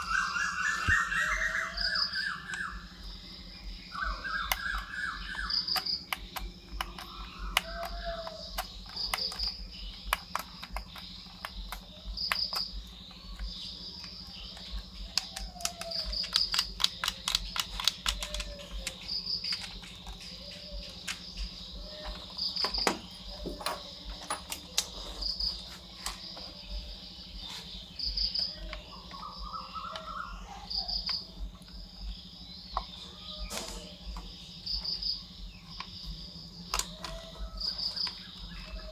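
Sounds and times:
crickets trilling: 0.0s - 38.9s
hands handling plastic toys: 14.1s - 26.6s.

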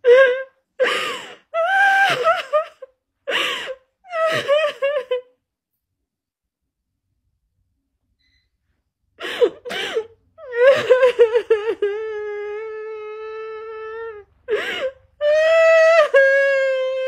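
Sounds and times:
woman sobbing: 0.0s - 5.4s, 9.2s - 17.0s
gasping breath: 14.5s - 15.1s.

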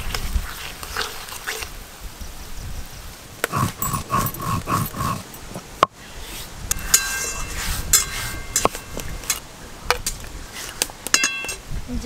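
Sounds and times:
stone roller grinding spices: 3.4s - 5.3s.

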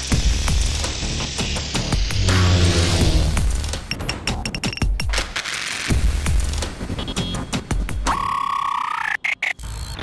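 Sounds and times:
electronic music: 5.9s - 10.0s.

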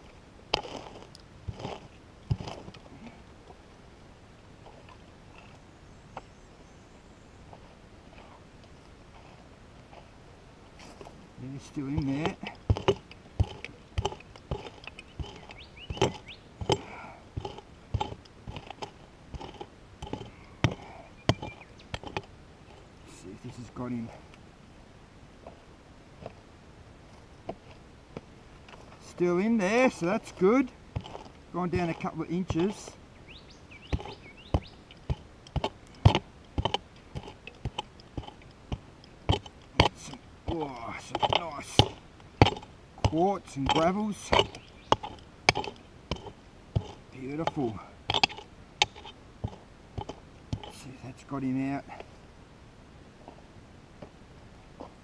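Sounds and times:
pick chopping into gravel: 33.9s - 50.8s.

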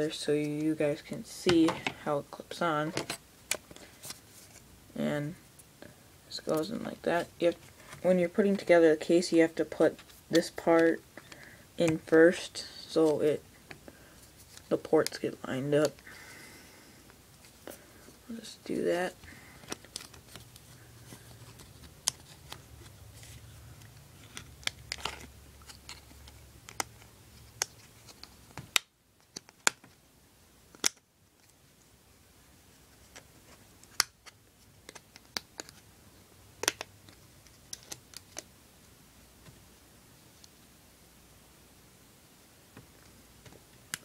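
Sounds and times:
plastic case clicks and snaps: 36.6s - 36.9s.

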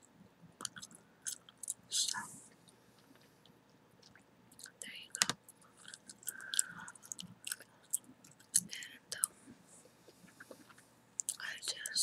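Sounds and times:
gum chewing smacks: 0.6s - 1.8s.

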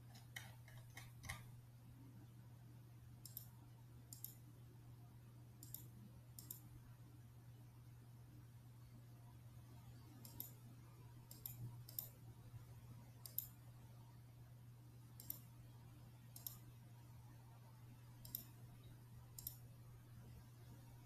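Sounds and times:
computer mouse clicking: 0.0s - 1.5s, 3.2s - 3.5s, 4.1s - 4.4s, 5.6s - 6.7s, 10.2s - 10.6s, 11.3s - 12.2s, 13.2s - 13.6s, 15.2s - 15.5s, 16.3s - 16.7s, 18.2s - 18.6s, 19.4s - 19.6s
faint low hum: 0.0s - 21.0s.

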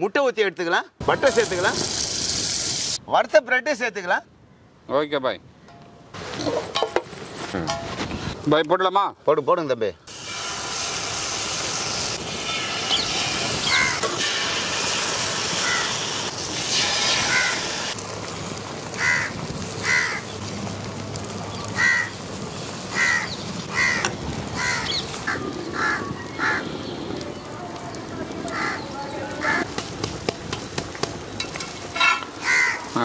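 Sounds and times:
food sizzling on a griddle: 1.1s - 3.0s, 10.1s - 26.4s
crows cawing: 13.7s - 14.0s, 15.6s - 16.0s, 17.2s - 17.7s, 19.0s - 20.4s, 21.7s - 22.2s, 22.9s - 26.8s, 28.5s - 29.7s, 32.3s - 33.0s.

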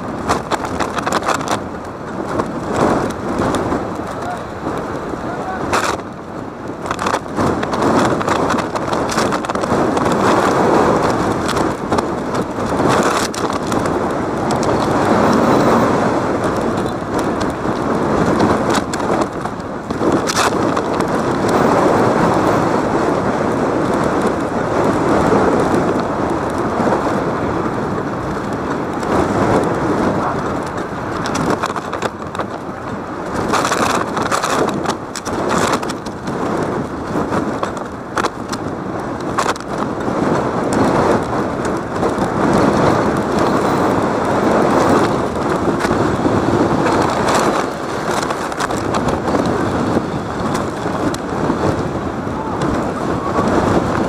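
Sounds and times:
rumbling game crowd noise: 49.7s - 54.0s.

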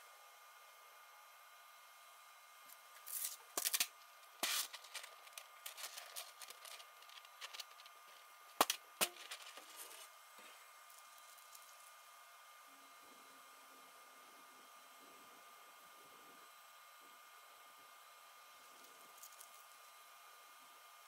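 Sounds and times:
faint steady hum: 0.0s - 21.0s
plastic scraping and crackling: 3.0s - 11.8s.

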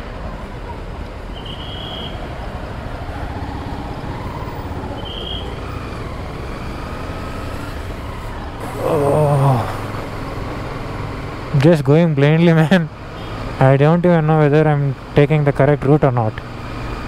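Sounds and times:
road noise: 0.0s - 17.0s
motorcycle engine: 1.8s - 14.6s
wavering horn blast: 5.0s - 5.6s.

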